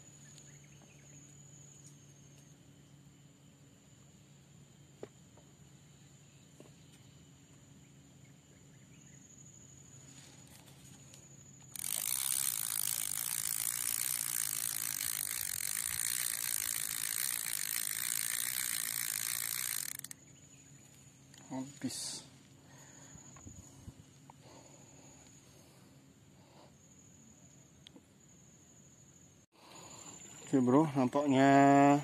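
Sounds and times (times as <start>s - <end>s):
fishing reel gears whirring: 11.7s - 20.2s.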